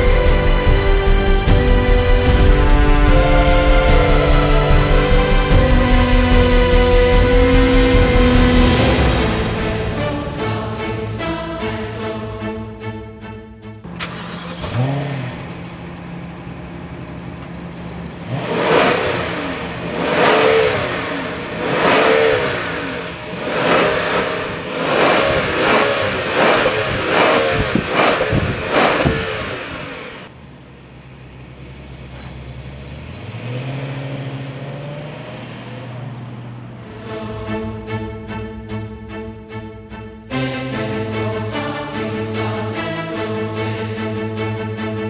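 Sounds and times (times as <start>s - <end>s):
car exhaust idling and revving: 0.0s - 10.3s, 13.9s - 39.4s.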